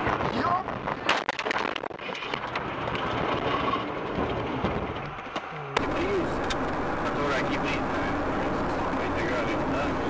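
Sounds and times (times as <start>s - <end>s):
tyre noise on wet road: 0.0s - 10.0s
car cabin drone: 2.3s - 10.0s.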